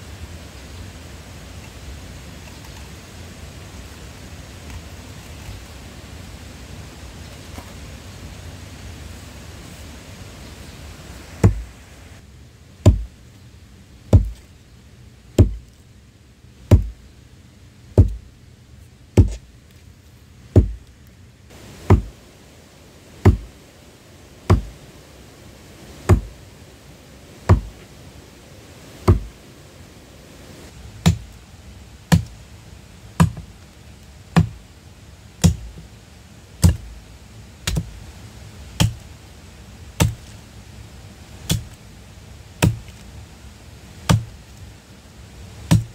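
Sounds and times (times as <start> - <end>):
tool striking wood: 11.4 - 11.6, 12.8 - 13.1, 14.1 - 14.4, 15.4 - 15.7, 16.7 - 17.0, 18.0 - 18.2, 19.2 - 19.4, 20.6 - 20.8, 21.9 - 22.1, 23.2 - 23.5, 24.5 - 24.7, 26.1 - 26.3, 27.5 - 27.8, 29.0 - 29.3, 31.0 - 31.3, 32.1 - 32.3, 33.2 - 33.5, 34.4 - 34.6, 35.4 - 35.8, 36.6 - 36.8, 38.8 - 39.0, 41.5 - 41.8, 42.6 - 43.0, 44.1 - 44.3, 45.7 - 45.9.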